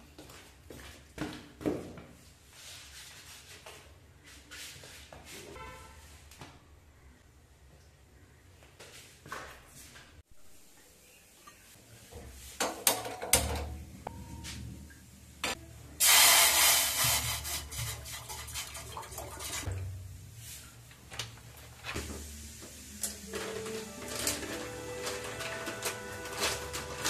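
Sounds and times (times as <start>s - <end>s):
kitchenware knocking and clinking: 12.6s - 14.4s
water pouring into a saucepan: 16.0s - 19.7s.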